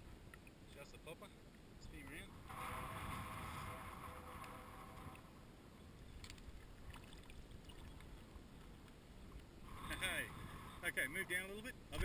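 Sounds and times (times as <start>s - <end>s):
steady hum: 2.2s - 6.2s
shallow water sloshing: 2.3s - 10.8s
faint splashes: 6.1s - 9.7s.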